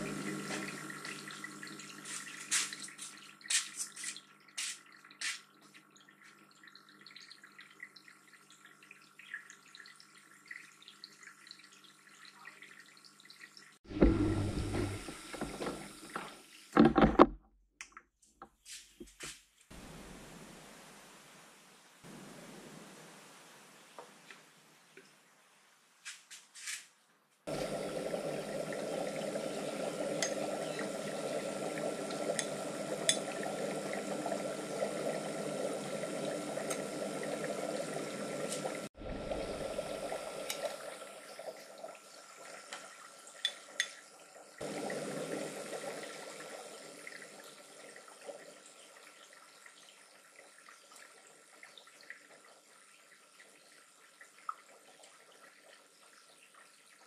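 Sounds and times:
air bubbling through liquid: 0:13.9 - 0:15.6, 0:27.5 - 0:41.0.

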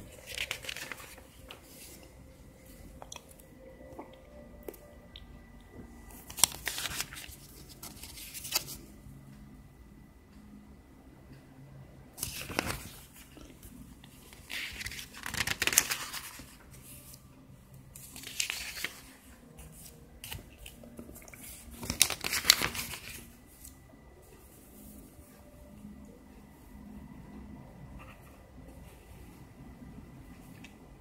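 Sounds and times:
paper handling: 0:00.0 - 0:03.2, 0:06.1 - 0:08.9, 0:12.2 - 0:17.2, 0:17.9 - 0:23.8
paper pages flipping: 0:00.0 - 0:03.3, 0:06.1 - 0:08.9, 0:12.2 - 0:17.2, 0:17.9 - 0:23.8.

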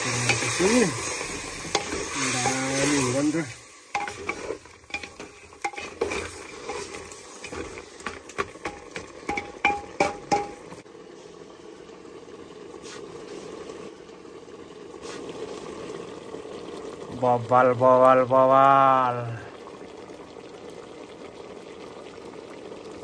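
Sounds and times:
meat sizzling in a pot: 0:00.0 - 0:10.9, 0:11.9 - 0:23.0
ladle scraping a pot: 0:00.2 - 0:10.8.

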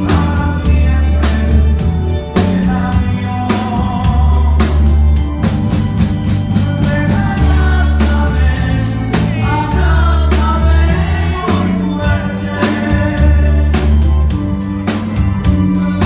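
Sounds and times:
male lead singer: 0:00.0 - 0:05.5, 0:06.2 - 0:16.0
drum beats: 0:00.0 - 0:16.0
electric bass line: 0:00.0 - 0:16.0.

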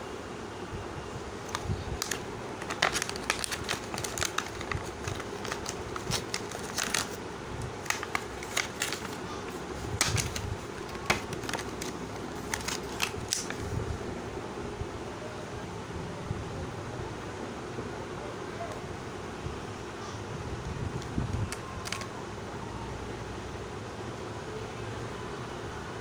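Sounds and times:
plastic packaging crackling: 0:01.4 - 0:13.7, 0:21.5 - 0:22.1.

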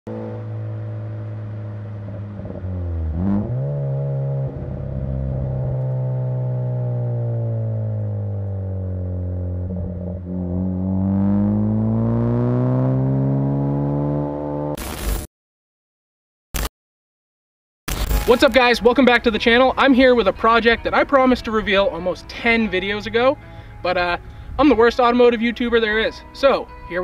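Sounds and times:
turbocharged car engine and exhaust: 0:00.1 - 0:15.2.

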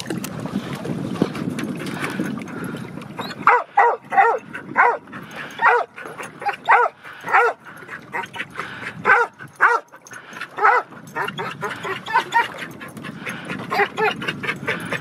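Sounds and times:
dog whining and yipping: 0:03.2 - 0:05.0, 0:05.6 - 0:08.4, 0:10.6 - 0:12.8, 0:13.7 - 0:15.0.

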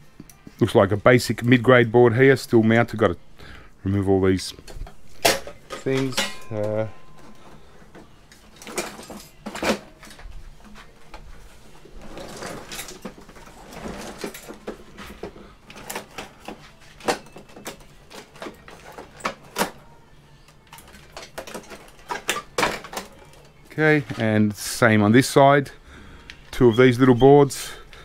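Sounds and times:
rustling and scraping: 0:04.6 - 0:19.6.

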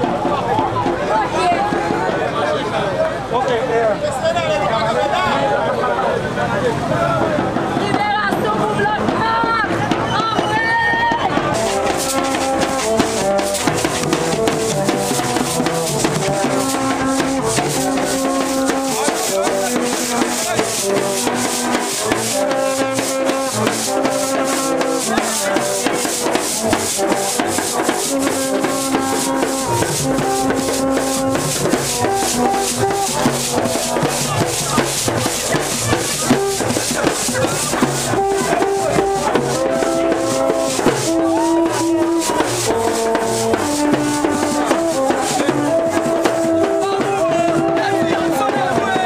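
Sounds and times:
dense drumming: 0:07.1 - 0:49.0
bamboo trumpets playing short notes: 0:11.2 - 0:48.0.

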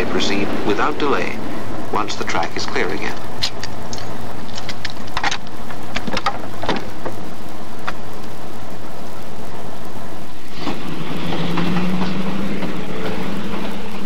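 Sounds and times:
old film soundtrack hiss: 0:00.0 - 0:14.0.

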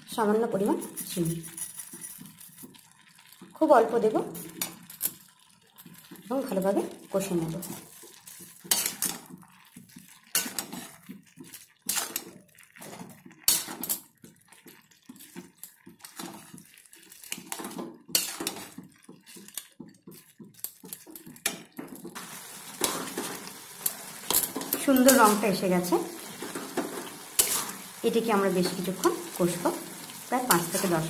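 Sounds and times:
metal spoon scraping a pan: 0:00.8 - 0:03.3, 0:07.5 - 0:21.7, 0:22.4 - 0:31.0.

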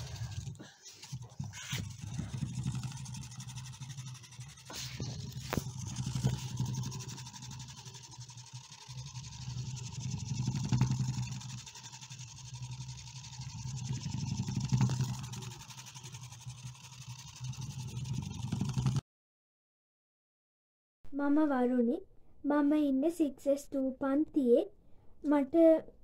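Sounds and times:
pen legs jittering on paper: 0:00.0 - 0:19.0
small motor buzzing: 0:00.0 - 0:19.0.

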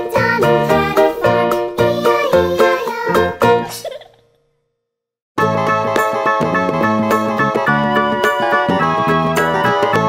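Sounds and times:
children's tune: 0:00.0 - 0:04.1.

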